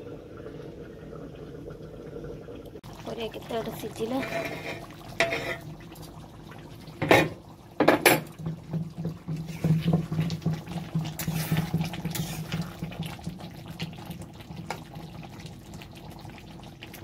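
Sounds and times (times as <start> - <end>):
thick gravy bubbling: 0.0 - 17.0
spatula scraping a metal pan: 4.1 - 5.7, 11.1 - 12.7.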